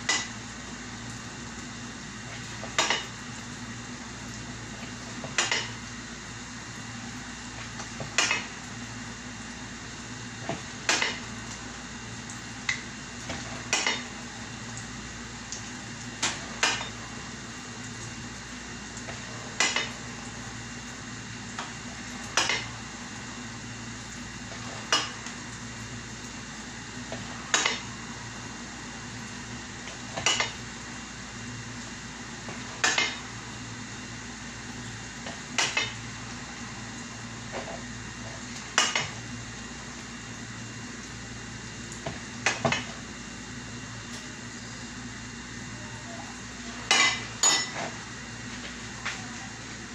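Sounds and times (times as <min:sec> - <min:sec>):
metal utensil clanking on pot: 0:46.9 - 0:47.9.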